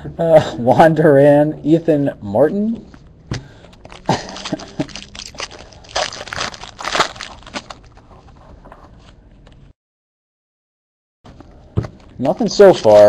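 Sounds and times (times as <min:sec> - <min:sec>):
cards rustling: 0:03.4 - 0:09.1
foil wrapper crinkling: 0:03.8 - 0:08.1.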